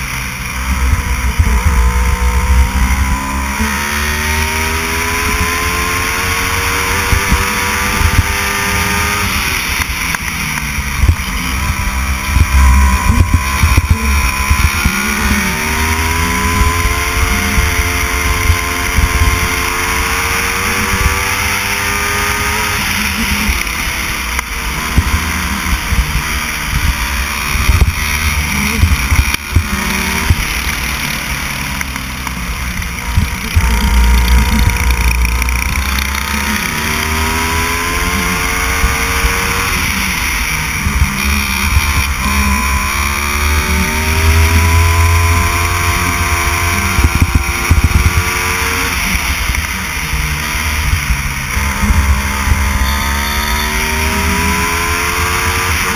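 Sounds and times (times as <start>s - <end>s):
go-kart engine revving: 0.0s - 55.9s
wind rumbling on microphone: 6.9s - 20.0s, 24.6s - 31.0s, 31.9s - 48.3s.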